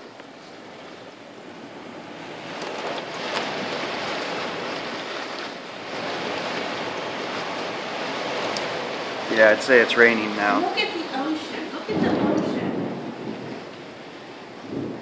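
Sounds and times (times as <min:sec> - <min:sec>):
heavy rain pouring: 0:00.0 - 0:15.0
wind: 0:00.0 - 0:15.0.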